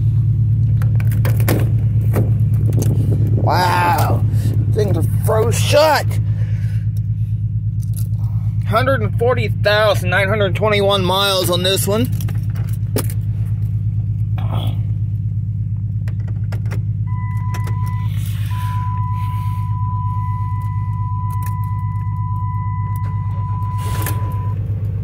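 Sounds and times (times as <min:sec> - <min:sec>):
car engine fast-idling: 0:00.0 - 0:25.0
steady high tone: 0:17.1 - 0:24.6.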